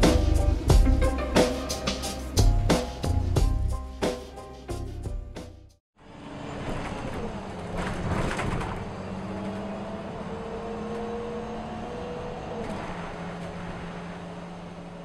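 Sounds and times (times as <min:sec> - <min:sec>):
bus engine and road noise: 0:00.0 - 0:03.6, 0:04.7 - 0:15.0
background music: 0:00.0 - 0:05.8.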